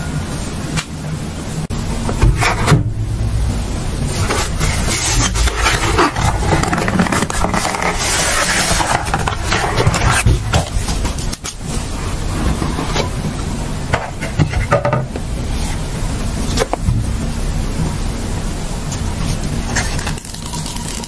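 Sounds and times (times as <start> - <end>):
cardboard scraping and rubbing: 4.0 - 13.3.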